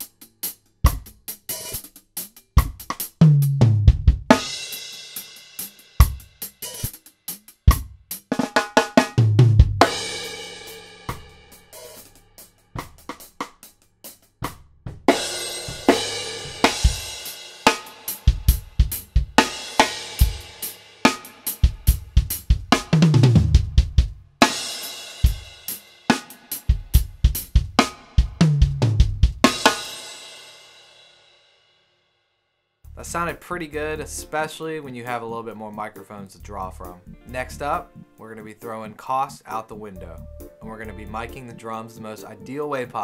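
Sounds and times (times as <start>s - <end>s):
drum fill down the toms: 0.0s - 30.8s
drum kit playing a beat: 0.0s - 31.2s, 32.9s - 43.0s.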